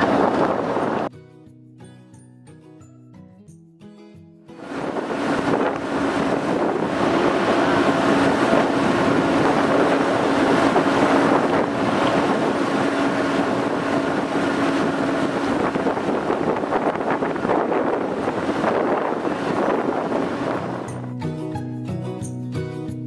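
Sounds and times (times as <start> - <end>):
boat engine hum: 0.0 - 1.1, 4.6 - 22.4
wind buffeting microphone: 0.0 - 1.1, 4.6 - 21.1.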